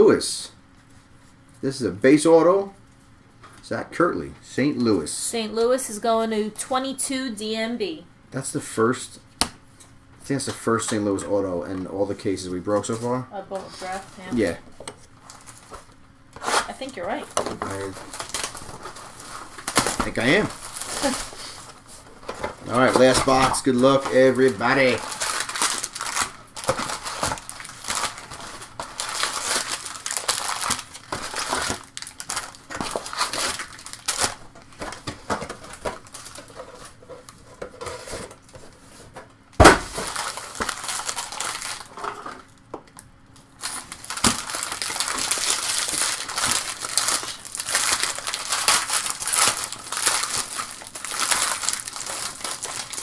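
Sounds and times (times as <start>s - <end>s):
foil wrappers crinkling: 11.4s - 42.6s, 43.3s - 53.0s.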